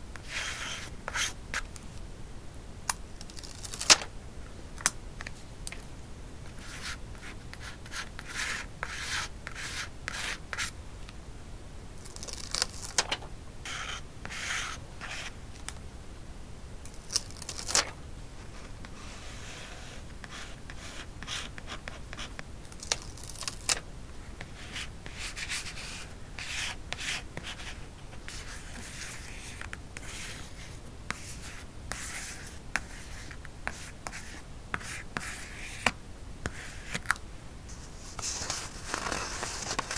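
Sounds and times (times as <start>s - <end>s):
paper rustling and rubbing: 3.2s - 4.1s, 12.0s - 15.3s, 16.9s - 21.6s, 36.5s - 39.9s.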